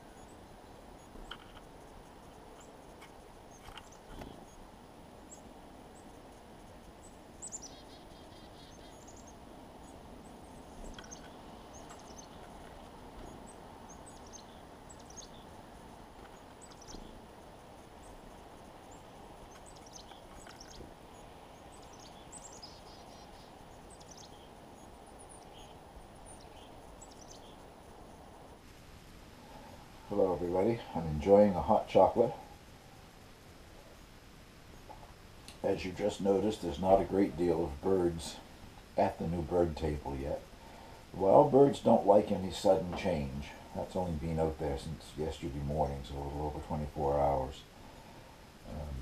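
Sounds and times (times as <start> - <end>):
birds chirping: 0.0 - 28.6, 29.3 - 49.0
low background hiss: 0.0 - 49.0.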